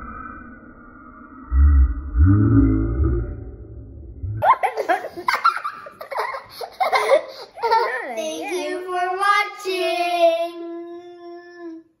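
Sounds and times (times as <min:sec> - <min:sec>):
children laughing and chattering: 0:04.5 - 0:10.6.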